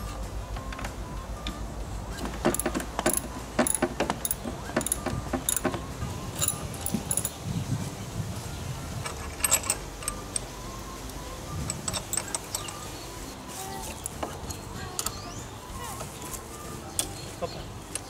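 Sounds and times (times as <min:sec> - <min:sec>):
metal tools clinking and tapping: 0:02.1 - 0:07.4, 0:09.0 - 0:10.6, 0:11.6 - 0:12.9, 0:13.8 - 0:15.2.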